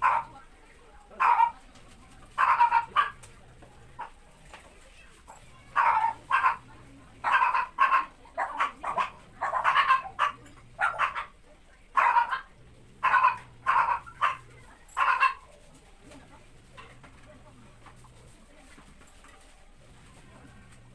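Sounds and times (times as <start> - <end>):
dog barking: 0.0 - 0.4, 1.2 - 1.6, 2.4 - 3.2, 5.7 - 15.5.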